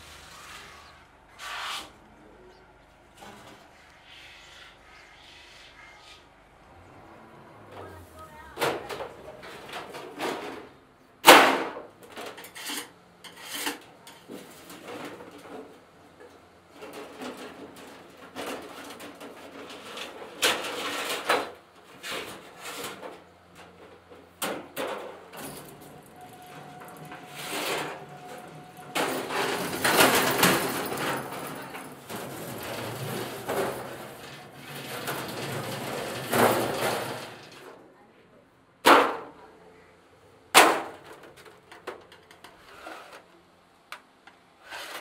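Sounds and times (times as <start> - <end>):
metal knocks and scrapes: 7.6 - 15.8, 16.7 - 37.8
rolling machine grinding metal: 16.7 - 37.8
sheet metal clanking: 22.2 - 37.8.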